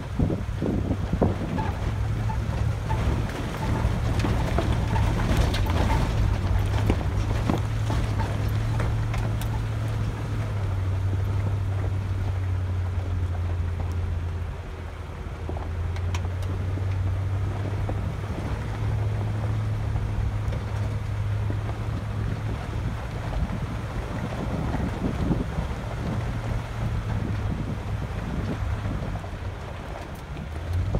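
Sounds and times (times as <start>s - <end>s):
gravel crunching under tyres: 0.0s - 30.9s
vehicle engine and tyre drone: 0.0s - 30.9s.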